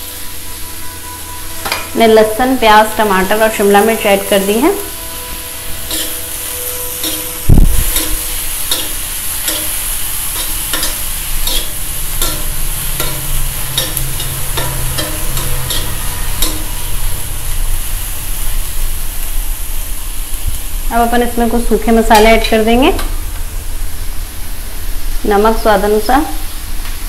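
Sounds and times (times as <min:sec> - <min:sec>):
vegetables sizzling in butter: 0:00.0 - 0:27.0
metal spatula scraping a pan: 0:00.1 - 0:18.2.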